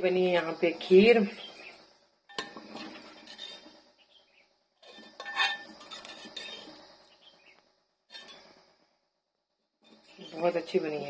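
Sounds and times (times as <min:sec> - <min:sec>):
metal spoon scraping a pot: 0:02.3 - 0:03.8, 0:04.8 - 0:06.8, 0:08.1 - 0:08.6.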